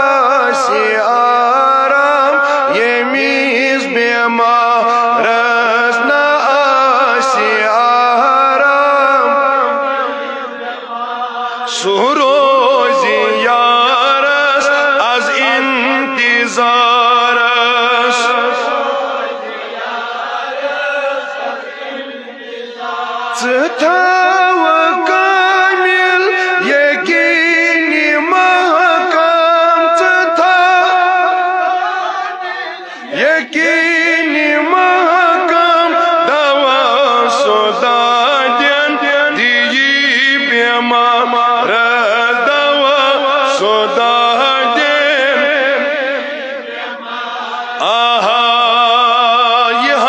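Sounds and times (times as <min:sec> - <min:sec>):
person singing a devotional chant: 0:00.0 - 0:50.0.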